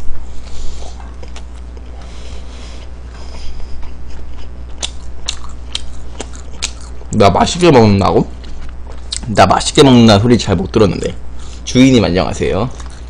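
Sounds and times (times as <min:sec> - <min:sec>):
steady low hum: 0:00.0 - 0:13.0
chewing fries: 0:00.1 - 0:09.3, 0:12.4 - 0:13.0.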